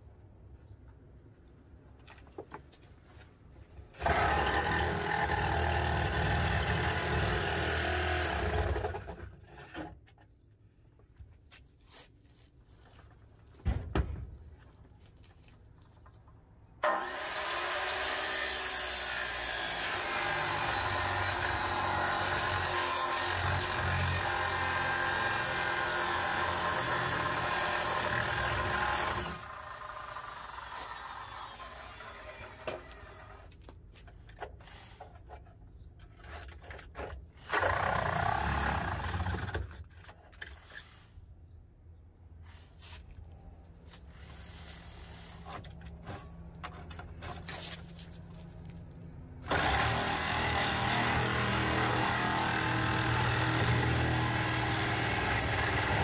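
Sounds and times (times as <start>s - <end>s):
reciprocating saw cutting metal: 16.8s - 33.4s.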